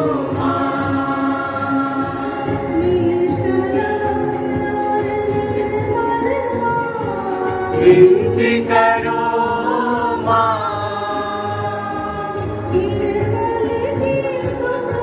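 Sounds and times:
group singing a hymn: 0.0 - 2.8, 7.6 - 13.0.

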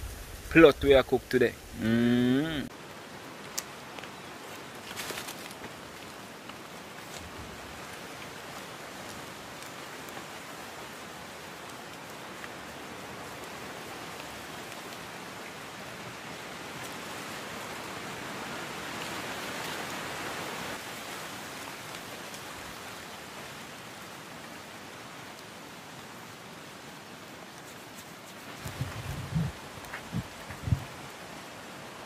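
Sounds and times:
pot hissing over fire: 0.0 - 2.7.

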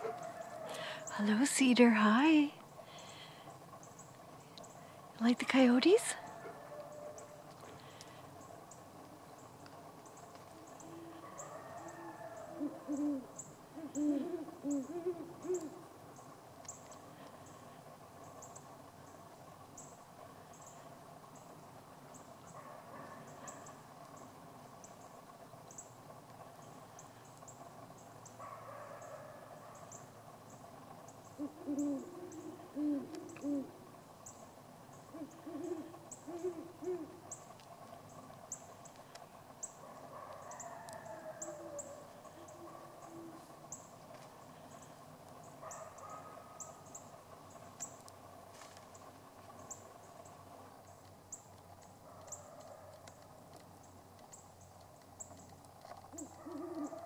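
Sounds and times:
coyotes howling: 0.0 - 1.2, 6.0 - 9.5, 10.3 - 16.2, 28.4 - 30.2, 31.3 - 34.0, 35.0 - 37.5, 39.6 - 47.2, 56.0 - 57.0
owls hooting: 10.6 - 15.9, 31.3 - 33.9, 35.0 - 37.4, 40.4 - 43.8, 56.1 - 57.0.

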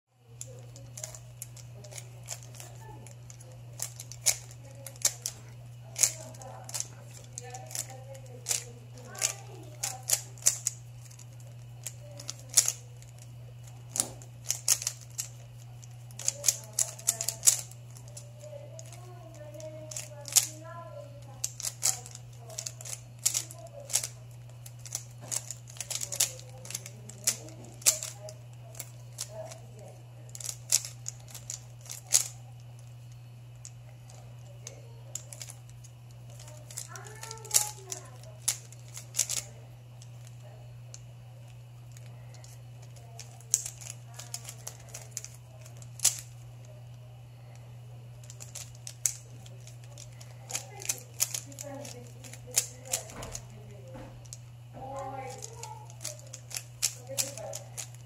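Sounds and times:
steady low hum: 0.1 - 58.0
plastic puzzle cube clicking: 0.4 - 5.4, 6.0 - 15.5, 16.1 - 18.2, 18.8 - 20.6, 21.2 - 29.3, 30.3 - 32.9, 34.6 - 35.6, 36.3 - 39.5, 41.9 - 46.3, 48.2 - 53.5, 55.2 - 58.0.

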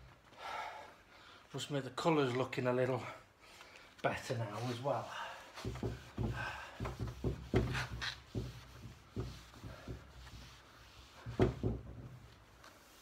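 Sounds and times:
cloth rubbing wooden table: 4.4 - 13.0.

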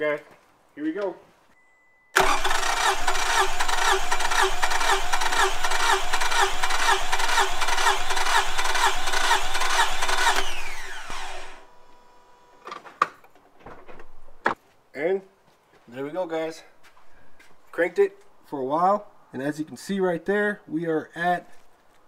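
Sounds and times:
engine cranking on starter motor: 2.2 - 11.7.

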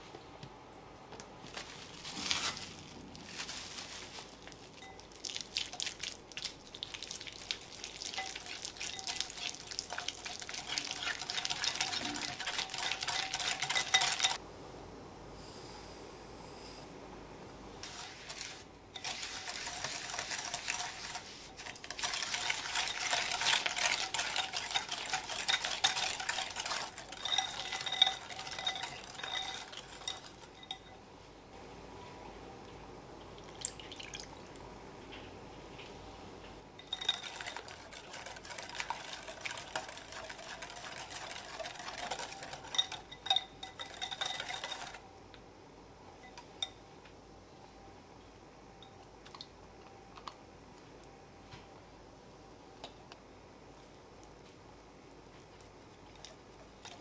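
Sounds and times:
whisk clicking against glass bowl: 8.2 - 14.4, 19.0 - 31.0, 36.8 - 45.0.

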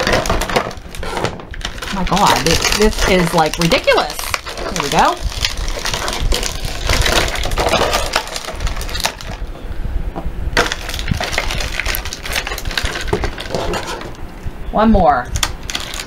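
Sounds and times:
plastic packaging crinkling: 0.0 - 9.5, 10.6 - 14.2, 15.4 - 16.0.

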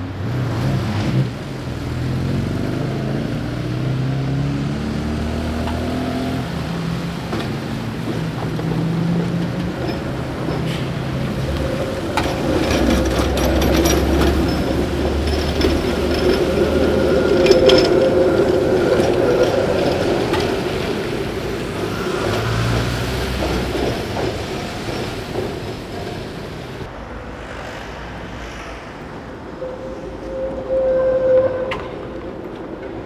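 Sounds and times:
street rumble: 0.0 - 33.0
tram rumbling on rails: 0.0 - 33.0
sharp clicks of tram wheels: 5.6 - 26.9.

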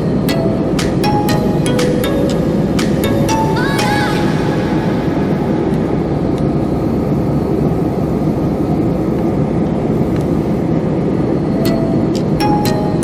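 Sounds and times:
jet airliner cabin engine noise: 0.0 - 13.0.

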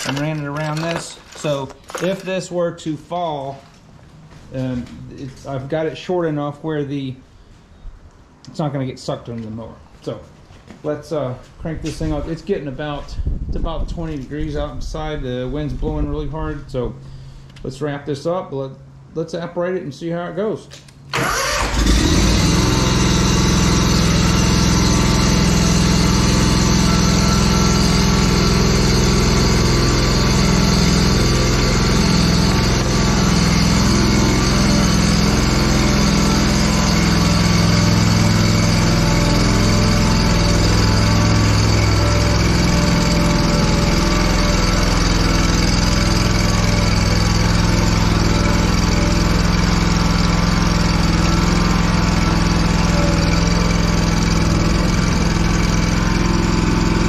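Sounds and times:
lawn mower engine running: 0.0 - 2.5, 21.1 - 57.0.

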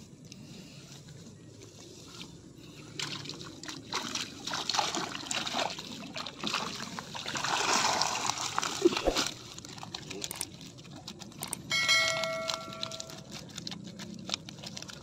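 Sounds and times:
water splashing and streaming: 2.9 - 10.7
wet mesh net clicking and rustling: 8.3 - 15.0.

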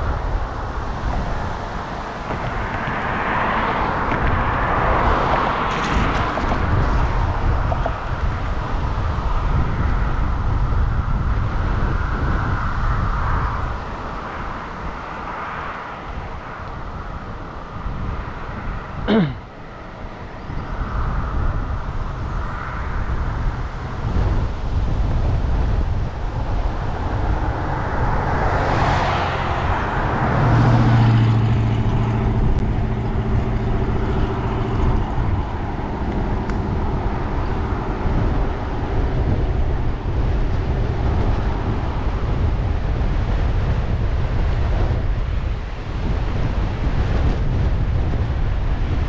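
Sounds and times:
engine hum: 0.0 - 49.0
wind rumbling on microphone: 0.0 - 49.0
motor vehicle passing: 25.8 - 49.0.

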